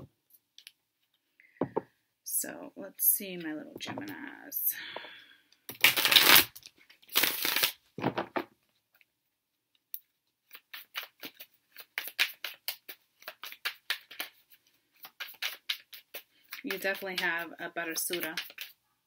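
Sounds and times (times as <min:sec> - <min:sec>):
cards rustling: 0:10.4 - 0:18.8.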